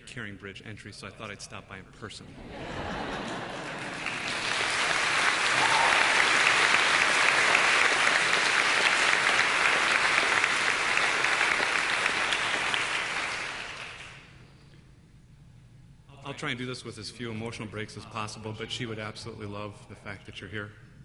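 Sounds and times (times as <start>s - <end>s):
audience applauding: 3.2s - 14.3s.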